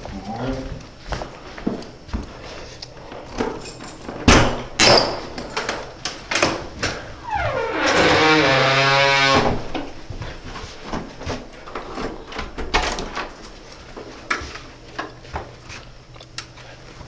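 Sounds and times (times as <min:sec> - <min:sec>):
door hinges creaking: 0:06.4 - 0:09.9.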